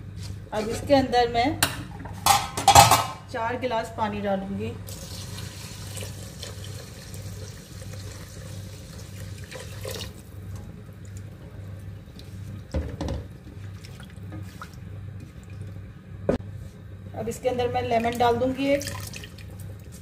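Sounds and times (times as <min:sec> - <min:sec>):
low steady hum: 0:00.0 - 0:20.0
water pouring into a metal pot: 0:04.9 - 0:10.3, 0:18.8 - 0:19.6.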